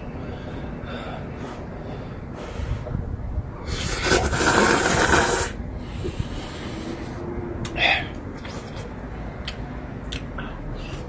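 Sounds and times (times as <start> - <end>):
person slurping noodles: 3.7 - 5.6.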